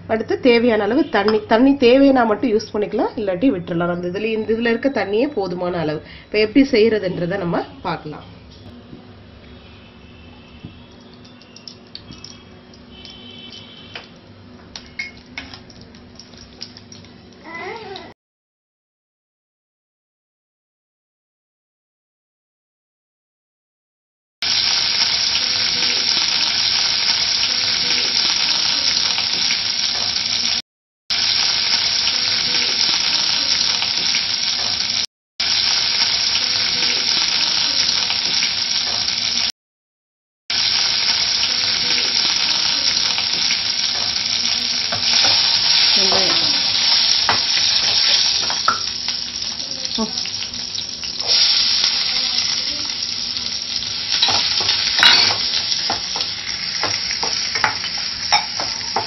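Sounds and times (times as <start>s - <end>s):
hot oil sizzling: 9.5s - 18.1s, 24.4s - 39.5s, 40.5s - 59.0s.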